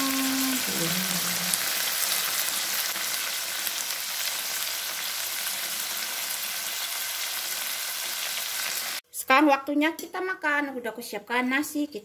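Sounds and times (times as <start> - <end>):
squid sizzling in a frying pan: 0.0 - 9.0.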